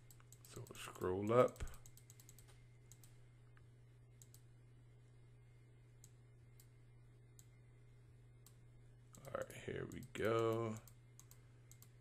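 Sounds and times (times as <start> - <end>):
computer mouse clicks: 0.0 - 3.2, 4.2 - 4.5, 8.4 - 12.0.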